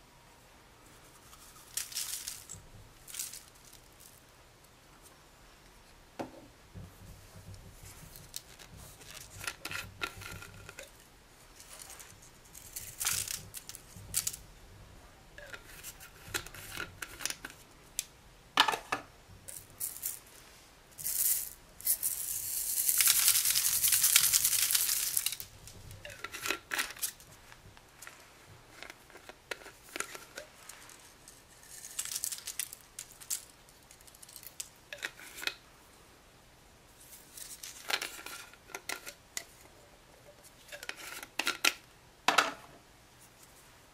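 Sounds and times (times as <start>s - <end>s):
plastic cups and tubes clicking: 8.0s - 11.0s, 12.5s - 14.4s, 15.4s - 17.6s, 21.0s - 27.3s.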